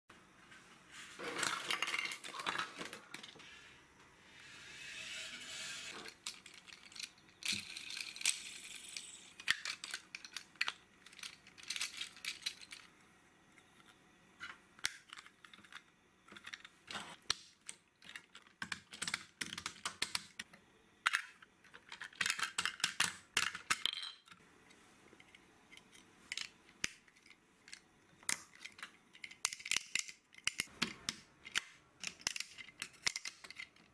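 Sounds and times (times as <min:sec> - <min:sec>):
plastic toy bricks clicking: 0:05.0 - 0:12.9, 0:17.3 - 0:24.4, 0:25.8 - 0:33.9.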